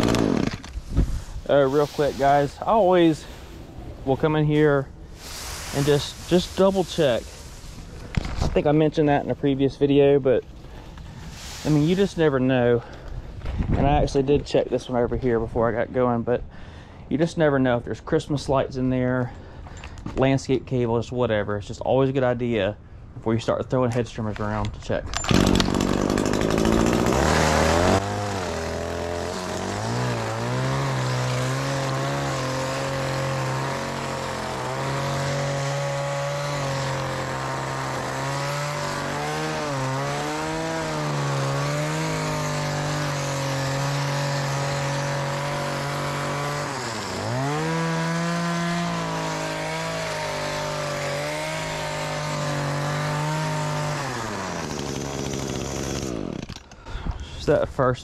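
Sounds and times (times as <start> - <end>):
hedge trimmer running: 0.0 - 0.8, 25.2 - 56.7.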